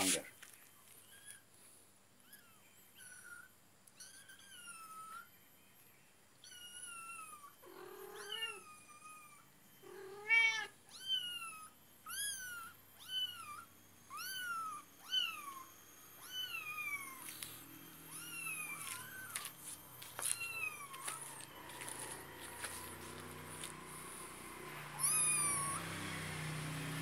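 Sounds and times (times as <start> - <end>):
adult cat calls: 6.5 - 17.4
kitten mewing: 7.6 - 8.6, 24.9 - 25.8.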